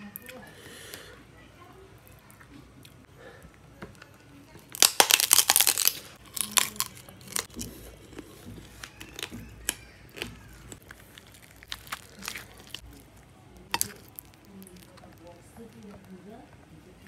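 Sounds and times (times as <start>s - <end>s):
prawn shell crackling and snapping: 3.5s - 16.6s.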